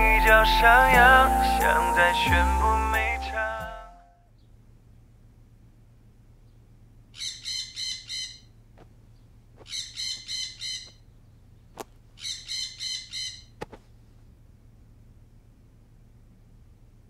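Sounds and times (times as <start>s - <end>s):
phone alarm bird chirps: 7.2s - 8.5s, 9.7s - 11.0s.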